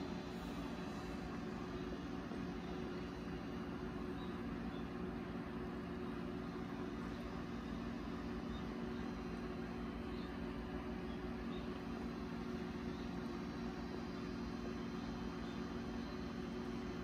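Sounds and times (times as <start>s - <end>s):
machine hum with hiss: 0.0s - 17.0s.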